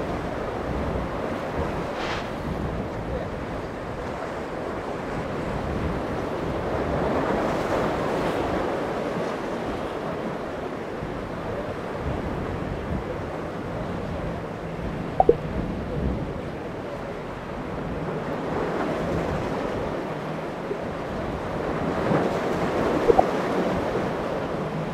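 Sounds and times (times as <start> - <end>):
wind buffeting microphone: 0.0 - 8.6
boat outboard motors droning: 0.0 - 24.9
breaking surf: 1.1 - 2.8.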